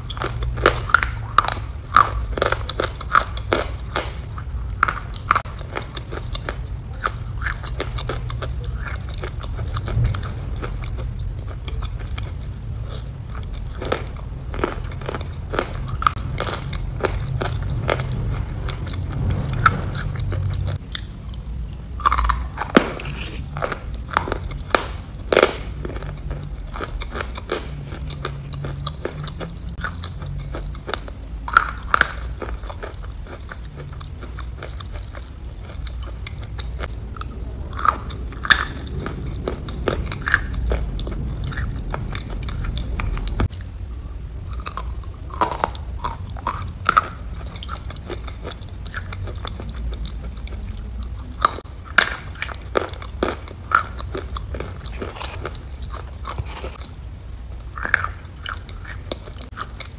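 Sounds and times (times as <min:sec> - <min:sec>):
chewing and mouth smacks: 0:00.0 - 0:59.9.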